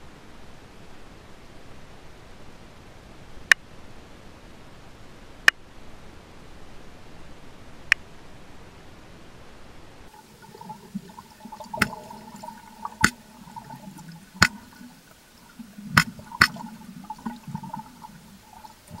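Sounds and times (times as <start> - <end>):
underwater water noise: 10.1 - 19.0
stingray clicks: 11.2 - 19.0.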